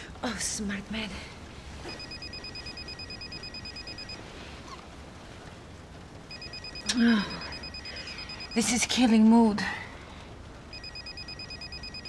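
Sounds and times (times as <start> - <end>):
telephone ringing electronic trill: 10.7 - 12.0.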